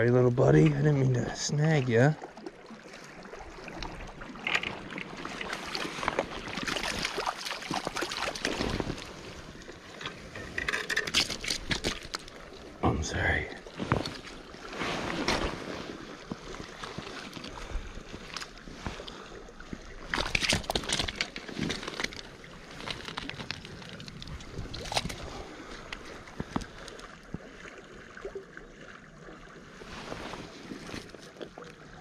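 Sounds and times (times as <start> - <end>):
river running over gravel: 0.0 - 27.8
clicks and scrapes of stones: 4.4 - 4.9, 10.0 - 12.4, 20.0 - 27.1.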